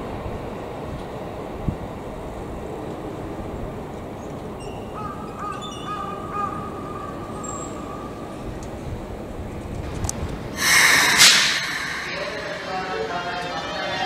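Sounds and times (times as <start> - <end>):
city background noise: 0.0 - 14.0
short broken high calls: 10.6 - 12.8
steady high tone: 10.6 - 13.8.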